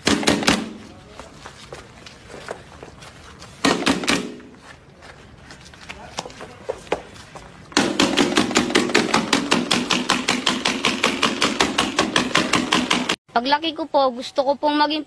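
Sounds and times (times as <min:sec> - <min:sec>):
bursts of sharp hits: 0:07.8 - 0:13.2.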